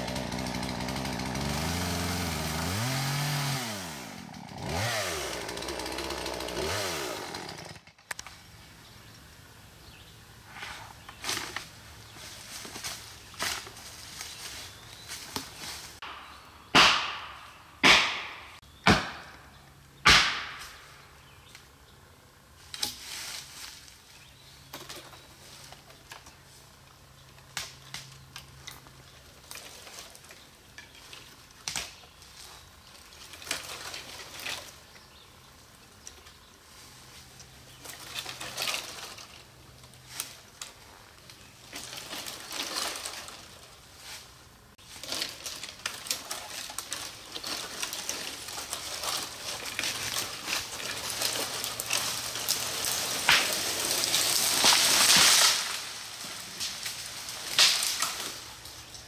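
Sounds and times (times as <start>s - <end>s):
tree toppling through boughs: 0.0s - 8.1s, 27.6s - 59.0s
branches rustling and cracking: 0.0s - 21.8s, 22.6s - 59.0s.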